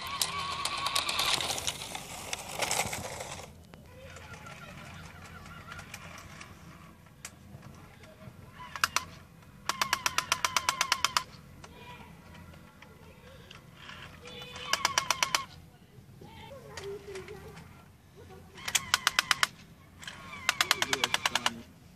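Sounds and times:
toy truck motor whirring: 0.0 - 21.7
rapid even clicking: 8.0 - 11.8, 12.4 - 15.6, 18.6 - 21.7.

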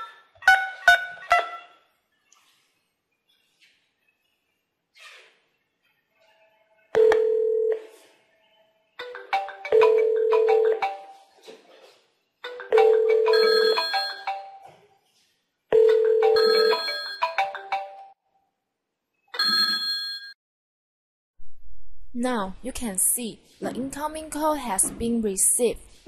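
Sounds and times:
phone ringtone melody: 7.0 - 8.0, 9.0 - 11.3, 12.5 - 14.6, 15.7 - 18.2.

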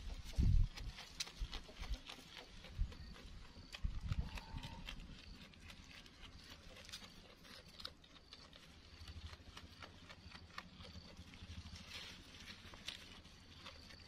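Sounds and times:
goat chewing leaves: 0.0 - 14.0
leaves rustling: 11.2 - 14.0.

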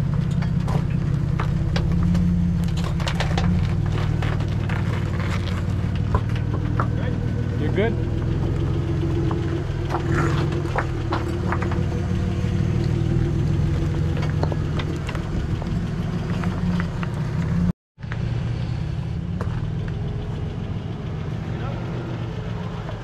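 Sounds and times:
pickup engine running at low revs: 0.0 - 23.0
tyres and stones knocking on rock: 9.9 - 11.9, 13.8 - 17.0.

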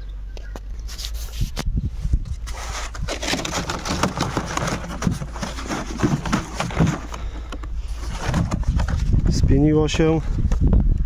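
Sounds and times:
liquid sloshing in plastic canister: 2.6 - 9.0
plastic knocks and rattles: 3.0 - 9.2.

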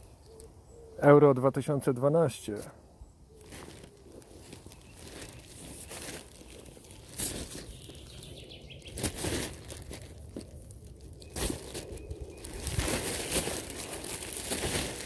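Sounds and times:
plastic bag rustling: 3.4 - 15.0.

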